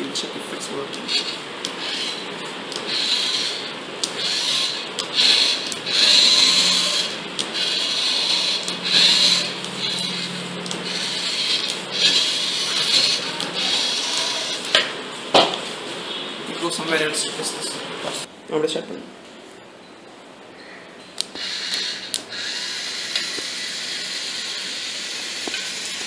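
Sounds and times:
small electric motors whirring: 0.8s - 14.9s, 21.2s - 26.0s.

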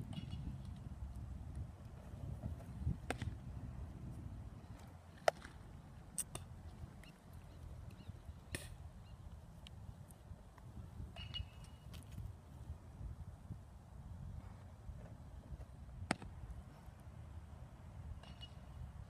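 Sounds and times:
low wind rumble: 0.0s - 19.0s
baseball popping into catcher's mitt: 2.9s - 3.4s, 16.0s - 16.4s.

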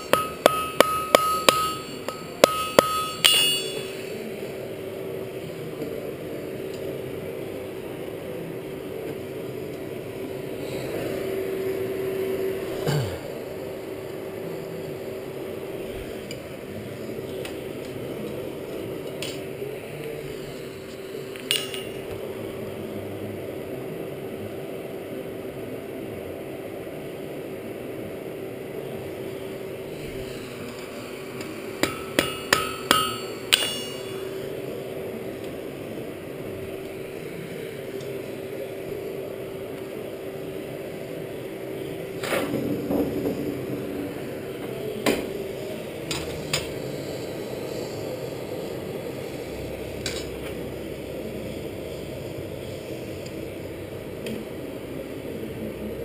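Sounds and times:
metal clanks: 0.0s - 4.1s, 21.4s - 22.0s, 31.8s - 34.2s
forge air blower humming: 0.0s - 56.0s
hammer blows on steel: 31.8s - 34.2s.

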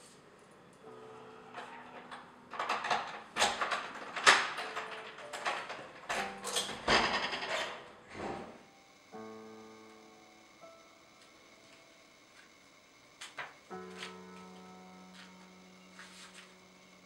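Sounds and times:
sustained musical chord: 0.8s - 1.8s, 8.7s - 12.4s, 13.7s - 17.0s
key unlocking door lock: 1.6s - 7.8s.

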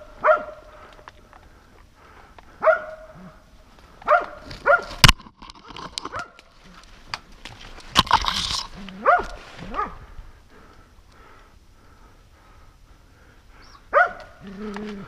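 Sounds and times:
dog barking: 0.2s - 0.6s, 2.6s - 3.4s, 4.0s - 5.0s, 9.0s - 10.0s, 13.9s - 14.4s.

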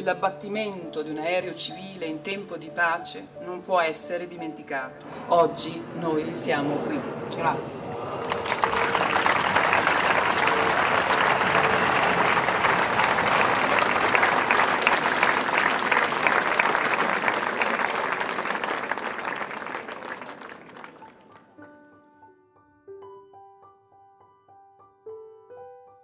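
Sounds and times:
crowd applauding: 6.3s - 21.7s.

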